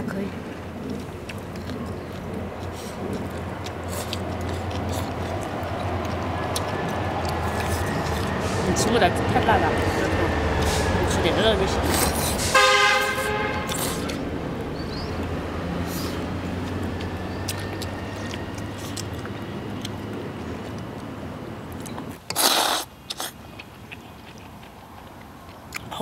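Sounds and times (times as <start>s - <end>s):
passing vehicle engine hum: 0.0s - 22.2s
slurping noodles: 2.0s - 9.2s, 9.8s - 12.6s, 13.6s - 14.2s, 22.2s - 24.6s.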